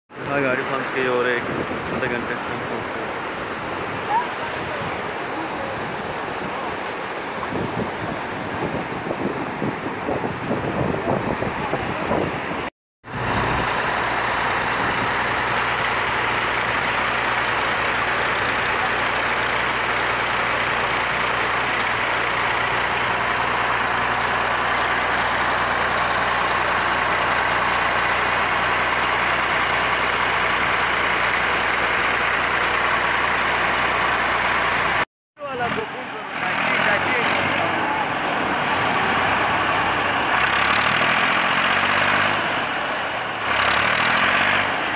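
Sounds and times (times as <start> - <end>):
rushing mountain stream: 0.2 - 44.9
vehicle engine running: 13.0 - 44.9.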